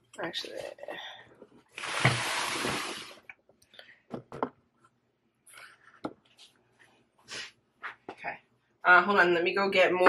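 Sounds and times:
dishes knocking and clinking: 0:04.1 - 0:04.6.

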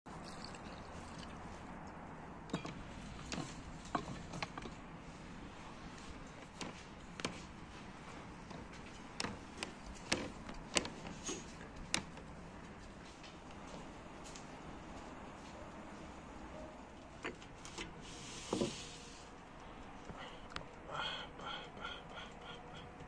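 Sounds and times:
steady background hiss: 0:10.6 - 0:23.0.

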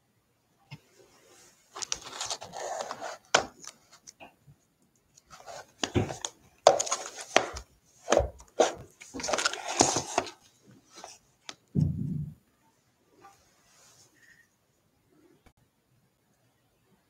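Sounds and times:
cardboard box scraping: 0:01.8 - 0:03.3.

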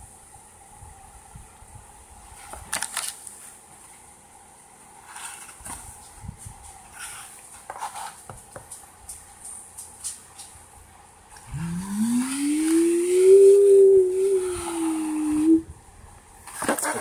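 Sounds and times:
plastic blister pack clicks and rustles: 0:02.5 - 0:03.4
taps and crinkles: 0:05.4 - 0:10.6.

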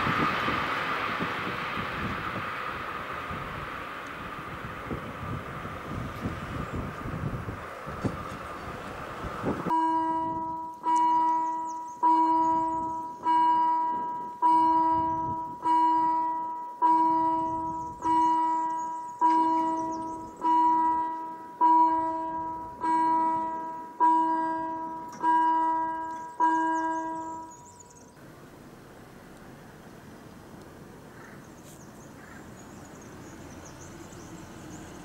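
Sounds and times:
level crossing warning bell: 0:09.6 - 0:28.2.

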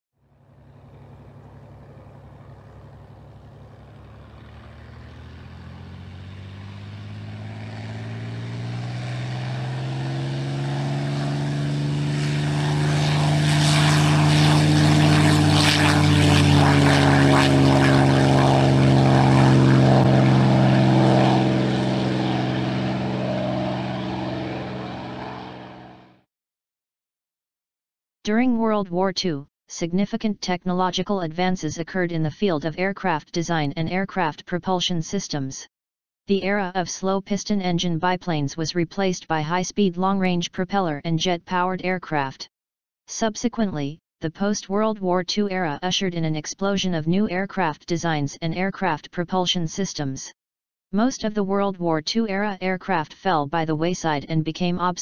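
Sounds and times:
propeller airplane passing by: 0:00.2 - 0:26.2.

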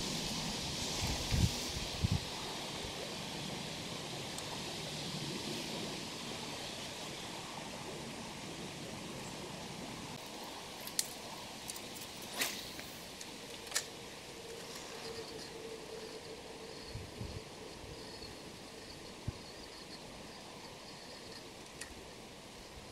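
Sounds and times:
rustling leaves: 0:00.0 - 0:22.9.

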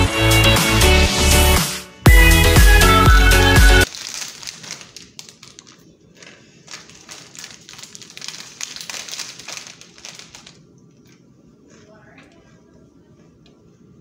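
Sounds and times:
music: 0:00.0 - 0:03.9
chip bag crinkling: 0:03.8 - 0:11.2.

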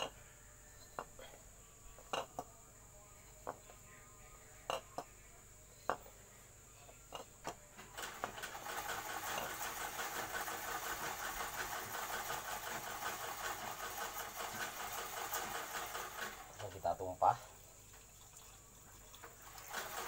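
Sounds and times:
compressor motor rattling: 0:07.9 - 0:16.9, 0:19.2 - 0:20.0.

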